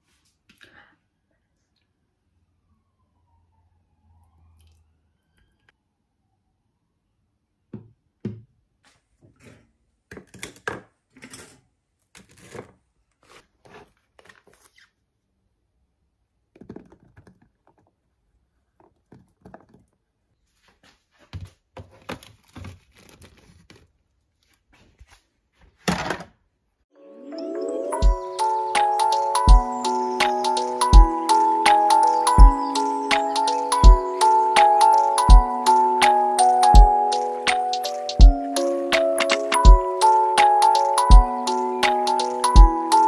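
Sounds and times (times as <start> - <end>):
plastic rustling: 20.6 - 25.4.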